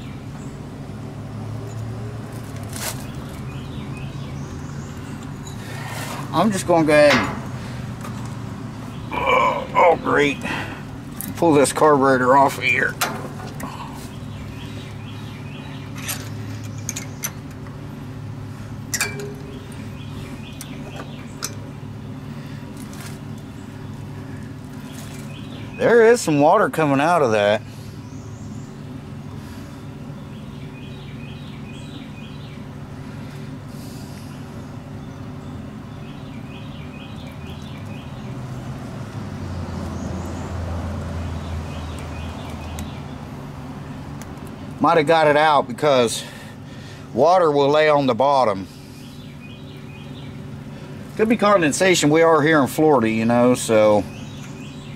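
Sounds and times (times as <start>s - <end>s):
bird chirping: 0.0s - 0.6s, 3.0s - 7.8s, 8.6s - 10.7s, 11.5s - 18.2s, 18.9s - 26.5s, 27.8s - 29.0s, 29.7s - 33.3s, 34.3s - 38.4s, 41.2s - 43.3s, 47.9s - 54.9s
low motor hum: 0.0s - 54.9s.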